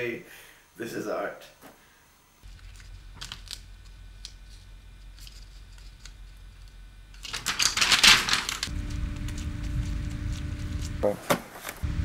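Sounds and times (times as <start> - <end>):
low steady hum: 1.8 - 11.2.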